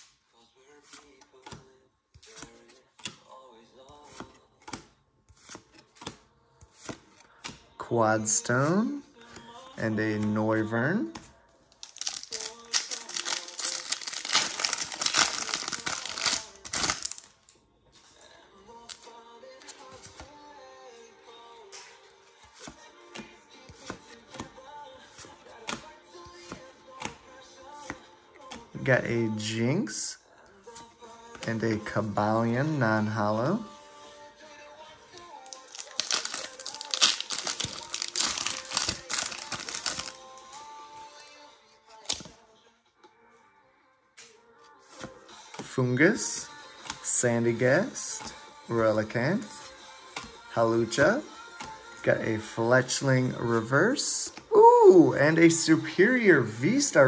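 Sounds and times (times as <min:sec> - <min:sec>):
soft background music: 0:00.0 - 0:57.0
foil wrapper crinkling and tearing: 0:11.8 - 0:17.3, 0:35.4 - 0:40.2.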